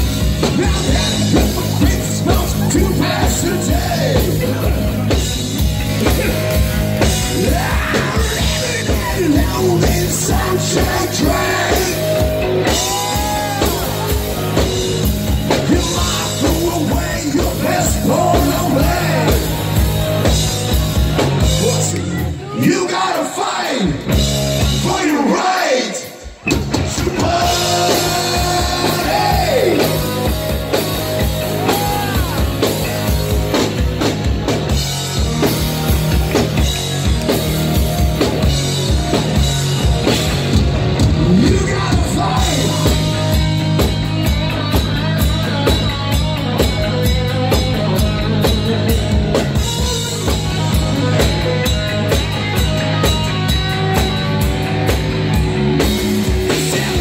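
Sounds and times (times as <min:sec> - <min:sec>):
electric guitar: 0:00.0 - 0:22.5, 0:26.1 - 0:57.0
drum kit beat: 0:00.0 - 0:23.0, 0:24.0 - 0:25.2, 0:26.2 - 0:57.0
bass guitar: 0:00.0 - 0:25.5, 0:26.2 - 0:57.0
person singing: 0:06.0 - 0:14.9, 0:15.5 - 0:19.8, 0:27.0 - 0:30.7, 0:41.1 - 0:54.1.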